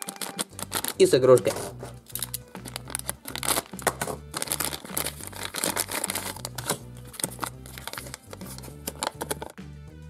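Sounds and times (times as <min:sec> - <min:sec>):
knife cutting packet: 0:00.0 - 0:09.6
paper leaflet crackling: 0:00.0 - 0:09.6
plastic wrapping crinkling: 0:00.0 - 0:09.6
background music with bass line: 0:00.4 - 0:10.0.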